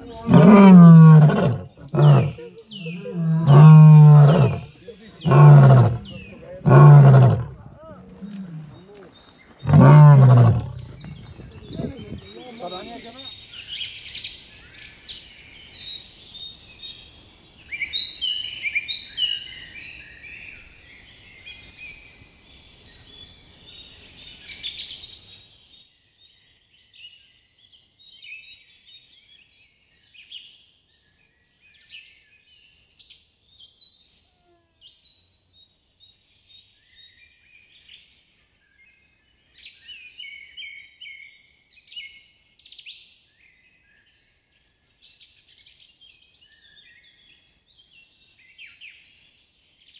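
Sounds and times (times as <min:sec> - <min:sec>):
small birds chirping and trilling: 0:00.0 - 0:17.6.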